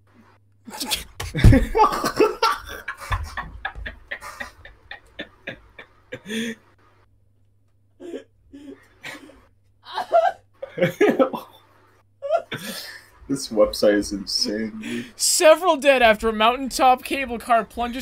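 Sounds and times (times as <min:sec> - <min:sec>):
person laughing: 0:00.7 - 0:06.6, 0:08.0 - 0:11.6.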